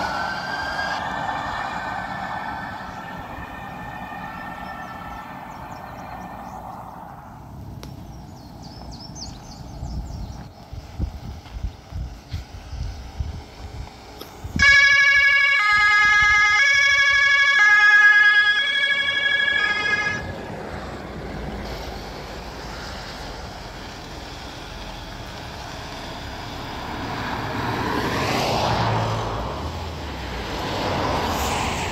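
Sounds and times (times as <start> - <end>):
steady rushing noise: 0.0 - 14.6
electronic police siren: 14.6 - 20.3.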